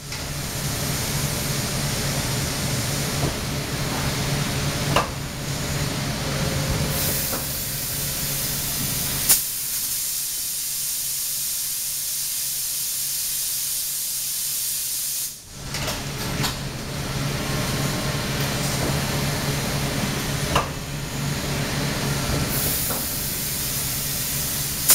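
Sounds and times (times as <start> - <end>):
low machine hum: 0.0 - 9.3, 15.4 - 24.9
compressed air hissing: 6.8 - 15.4, 22.4 - 24.9.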